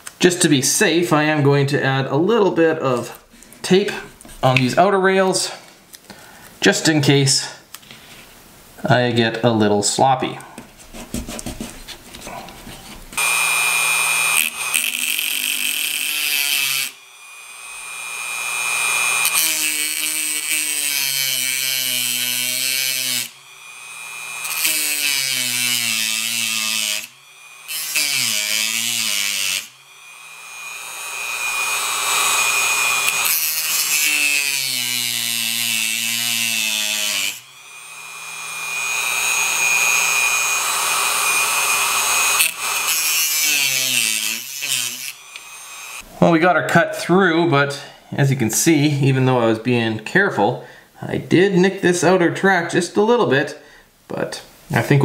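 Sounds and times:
rotary tool grinding metal rail: 13.2s - 46.0s.

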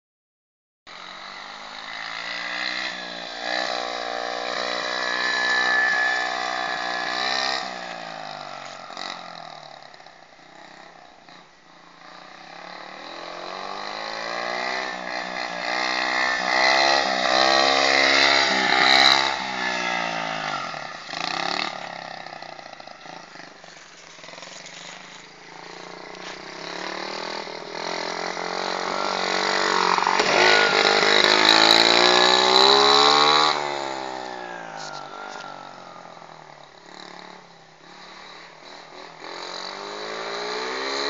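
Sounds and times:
dirt bike engine revving: 0.9s - 41.0s.

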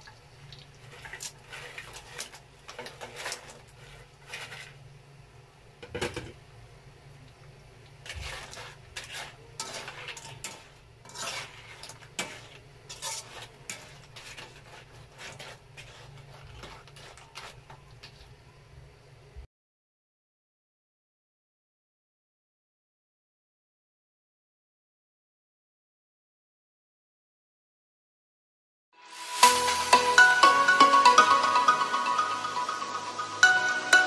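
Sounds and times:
utensil scraping a wok: 0.8s - 4.9s, 8.0s - 18.4s.

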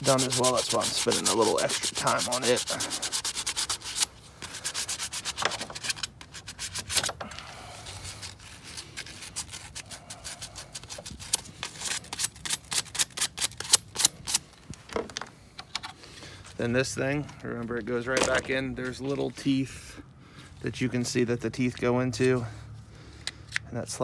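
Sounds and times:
sandpaper scratching metal: 0.0s - 7.1s, 8.0s - 14.4s.

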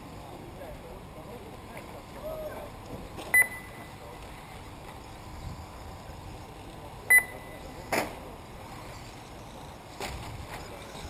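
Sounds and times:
outdoor background noise: 0.0s - 11.0s
short electronic beep: 3.3s - 3.9s, 7.1s - 7.6s.

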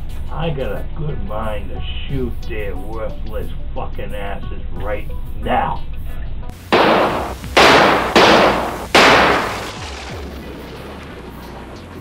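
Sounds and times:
gunshots: 6.7s - 10.2s.

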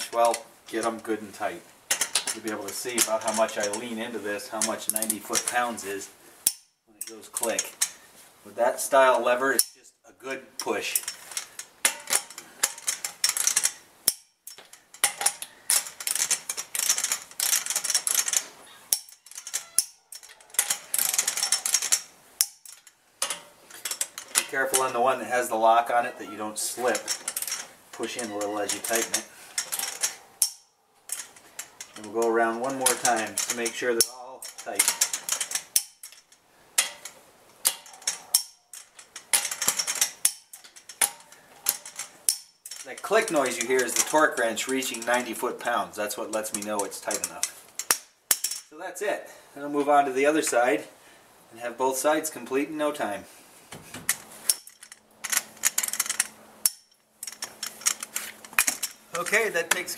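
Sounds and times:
torque wrench clicking: 54.5s - 59.4s.

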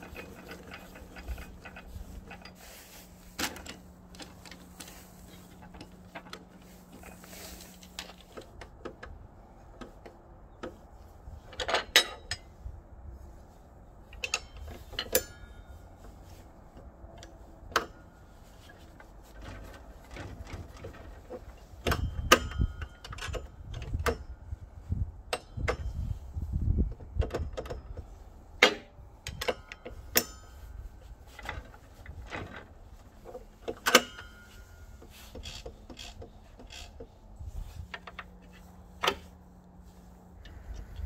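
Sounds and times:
low handling bumps: 0.0s - 11.5s.

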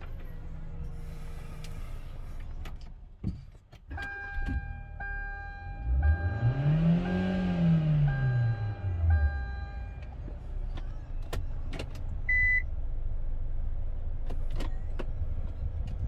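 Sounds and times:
dashboard warning chime beeping: 3.9s - 10.2s, 12.3s - 12.7s
car engine revving: 5.7s - 10.2s.

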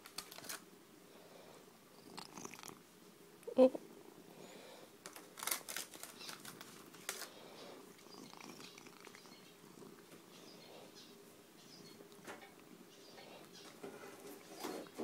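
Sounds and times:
crackling clicks and rustles: 0.0s - 0.7s, 5.0s - 10.3s, 13.5s - 15.0s
cat purring: 1.2s - 2.9s, 6.4s - 15.0s.

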